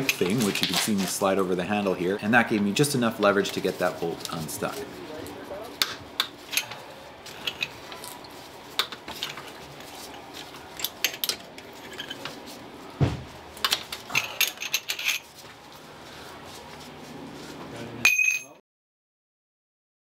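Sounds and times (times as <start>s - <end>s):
dull thump: 13.0s - 13.4s.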